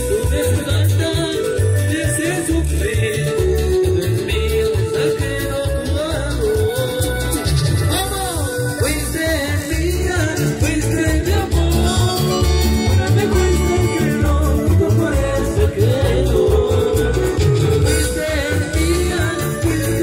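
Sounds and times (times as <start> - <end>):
live latin dance music: 0.0 - 20.0.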